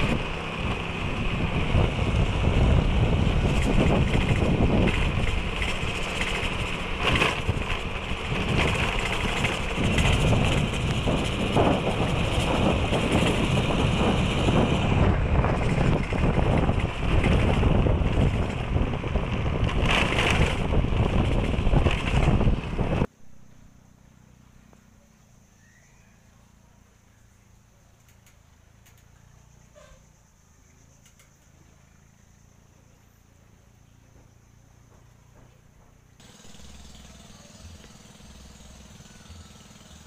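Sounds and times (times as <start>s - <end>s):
wind buffeting microphone: 0.0s - 23.1s
vehicle running: 0.0s - 40.0s.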